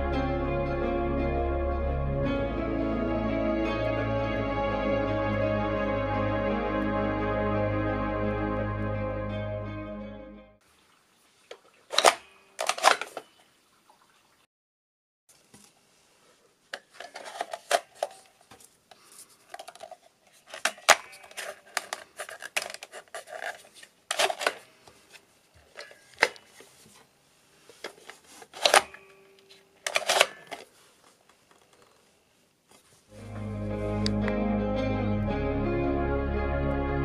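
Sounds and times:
music: 0:00.0 - 0:10.6, 0:33.1 - 0:37.0.

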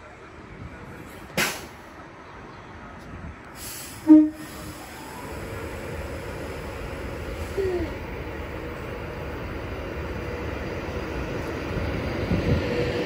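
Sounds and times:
train rumble: 0:00.0 - 0:13.0
train horn blast: 0:04.0 - 0:04.7.

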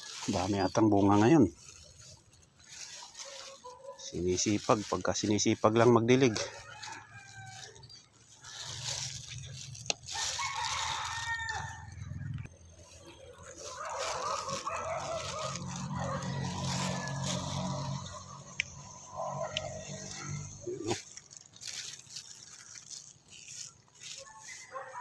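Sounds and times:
roosters crowing: 0:00.0 - 0:22.1, 0:22.8 - 0:25.0.

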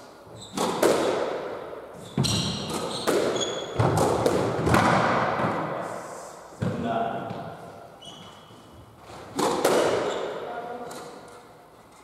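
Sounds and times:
shoe squeak on wooden floor: 0:00.3 - 0:00.7, 0:02.0 - 0:03.8, 0:08.0 - 0:08.9, 0:10.0 - 0:10.4
squash ball smacks: 0:00.5 - 0:01.5, 0:02.6 - 0:05.8, 0:09.3 - 0:10.1.

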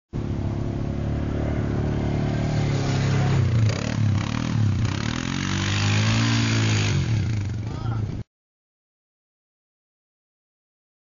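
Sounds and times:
quad bike engine revving: 0:00.2 - 0:08.2.

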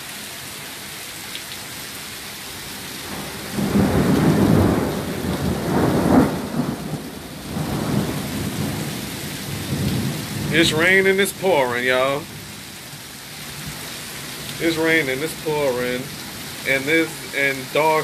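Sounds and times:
heavy rain falling: 0:00.0 - 0:18.0
rolling thunder rumble: 0:03.0 - 0:11.2.

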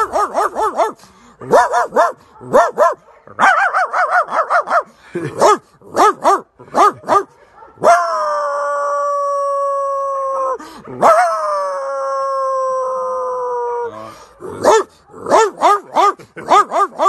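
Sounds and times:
man imitating dog barks: 0:00.0 - 0:17.0
man howling like a dog: 0:07.8 - 0:14.0.

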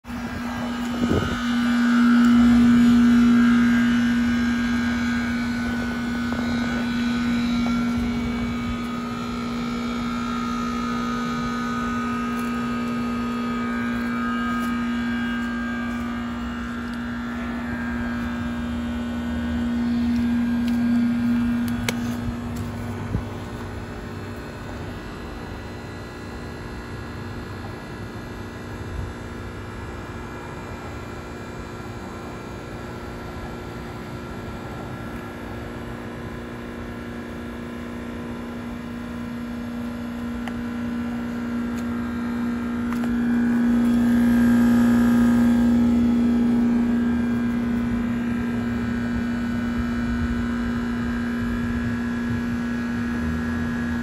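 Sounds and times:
compressor humming: 0:00.0 - 0:54.0.

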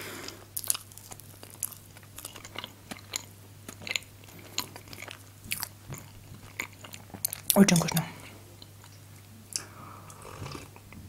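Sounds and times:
chewing with soft crunches: 0:00.2 - 0:11.0.

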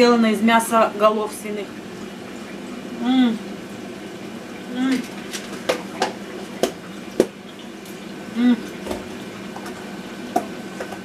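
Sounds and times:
woman humming: 0:03.0 - 0:03.5, 0:04.7 - 0:05.1, 0:08.3 - 0:08.8.

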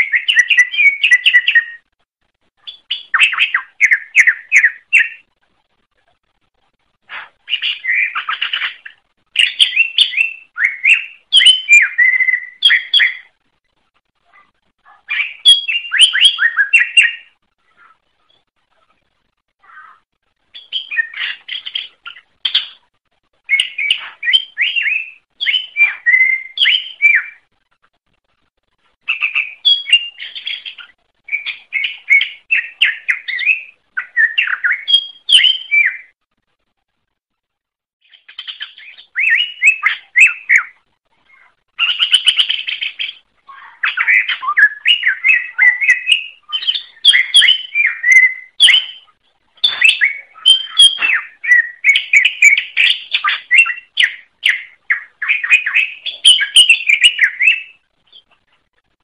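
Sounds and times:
bird singing: 0:00.0 - 0:01.9, 0:02.6 - 0:05.3, 0:07.2 - 0:13.4, 0:14.3 - 0:19.0, 0:19.6 - 0:22.8, 0:23.4 - 0:27.4, 0:29.0 - 0:36.2, 0:38.1 - 0:58.4.

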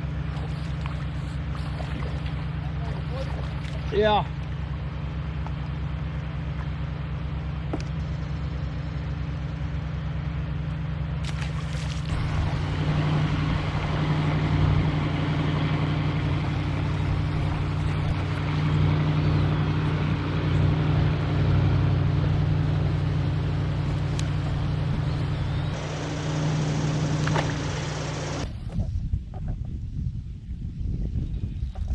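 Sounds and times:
steady low hum: 0:00.0 - 0:31.5
river water rushing: 0:12.0 - 0:22.9, 0:23.6 - 0:28.4
wind noise: 0:24.4 - 0:31.9.

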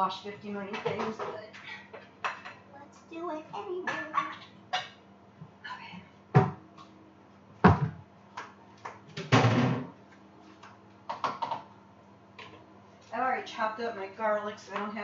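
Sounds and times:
cookware clattering: 0:00.7 - 0:02.7.

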